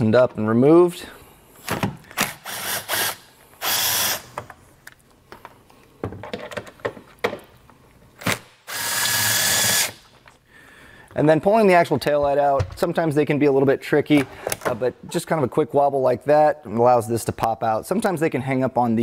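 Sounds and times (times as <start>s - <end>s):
cordless drill running: 2.2s - 4.3s, 8.7s - 10.0s
tool handling clicks and knocks: 4.3s - 7.8s.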